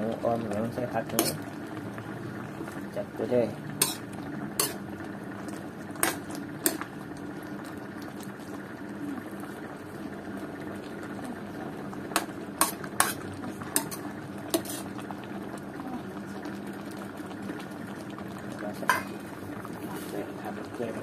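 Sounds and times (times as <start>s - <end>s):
broth bubbling: 0.0s - 21.0s
metal ladle scraping a wok: 3.8s - 4.8s, 12.6s - 13.2s, 13.8s - 14.0s, 14.6s - 14.9s.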